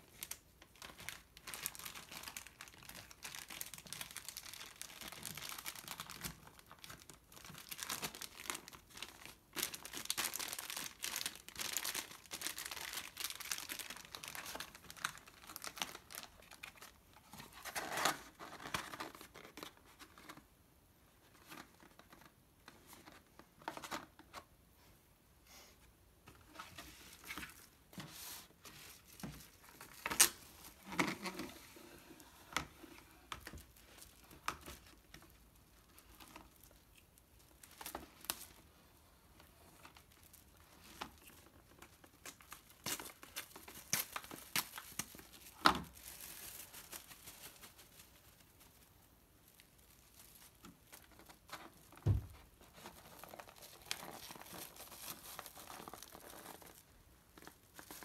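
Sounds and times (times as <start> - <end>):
plastic bags crinkling: 0.1 - 19.7, 39.7 - 58.0
dull thump: 52.0 - 52.4.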